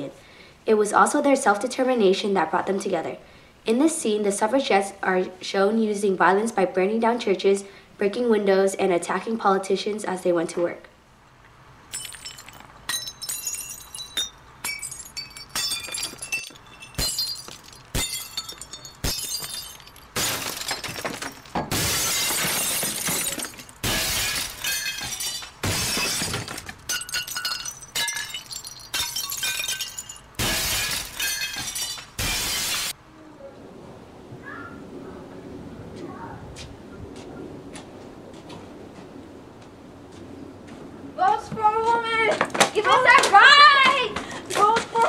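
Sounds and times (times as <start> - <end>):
window glass shattering: 11.9 - 33.0.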